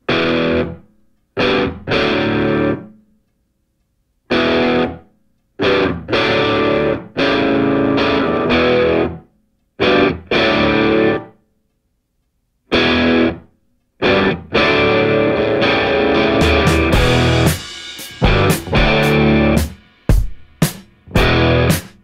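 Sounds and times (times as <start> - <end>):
distorted electric guitar chords: 0.0 - 0.8, 1.4 - 2.9, 4.3 - 5.0, 5.6 - 9.2, 9.8 - 11.3, 12.7 - 13.4, 14.0 - 19.8, 21.0 - 22.0.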